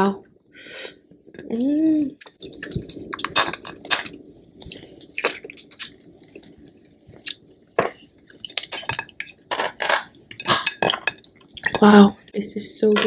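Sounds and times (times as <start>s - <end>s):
crab shell cracking: 2.2s - 11.8s
wet squishing: 2.2s - 12.1s.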